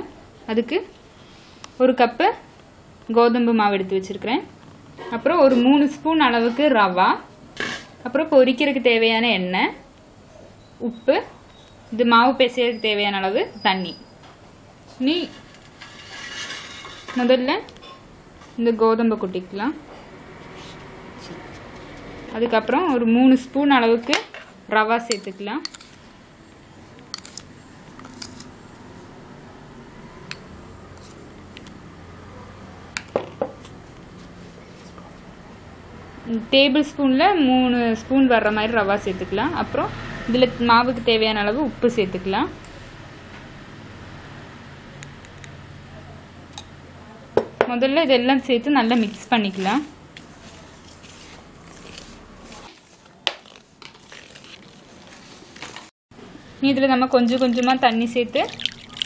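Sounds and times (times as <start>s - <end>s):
spoon and glass bowl tapping metal plate: 25.1s - 25.8s.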